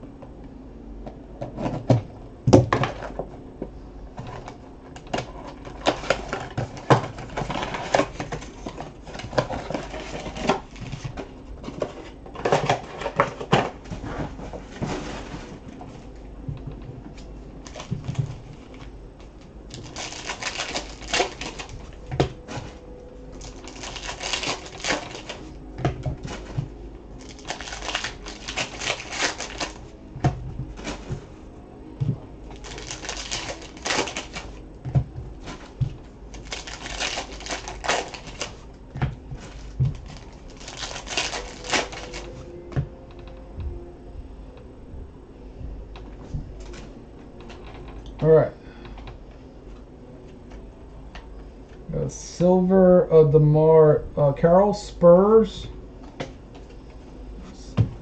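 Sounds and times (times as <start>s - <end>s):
cardboard and wrappers crinkling: 4.2s - 31.5s, 32.1s - 42.8s.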